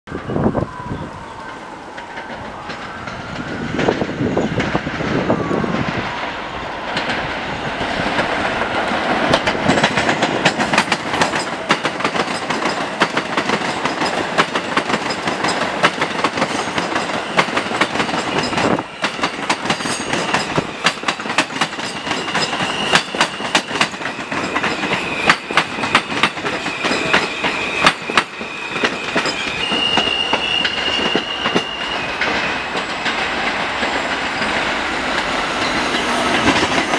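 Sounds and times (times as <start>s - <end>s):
train wheels clattering over rail joints: 6.9s - 36.9s
high thin wheel squeal: 21.8s - 33.3s.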